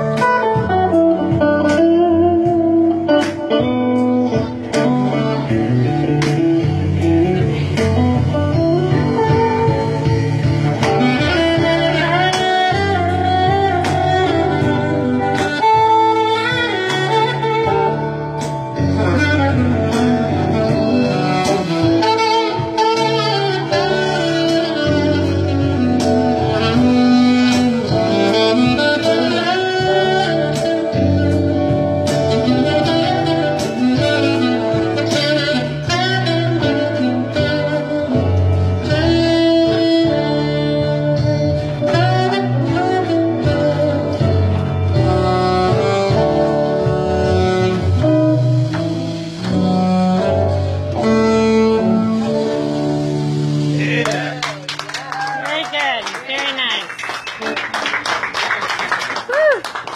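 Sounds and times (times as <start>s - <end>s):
steady drum beat: 0.0s - 37.7s
bass line: 0.0s - 55.9s
electric guitar: 0.0s - 59.9s
saxophone lead: 0.0s - 59.9s.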